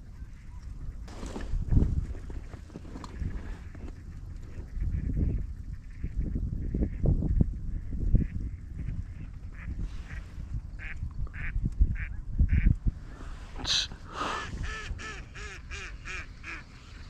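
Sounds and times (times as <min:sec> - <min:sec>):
ducks quacking: 0:09.1 - 0:12.8, 0:13.6 - 0:17.0.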